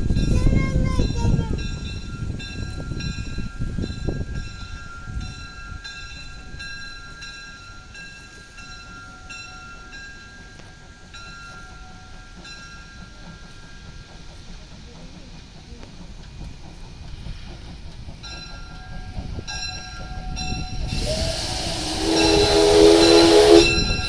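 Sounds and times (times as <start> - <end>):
steam locomotive rumble: 0.0 - 24.0.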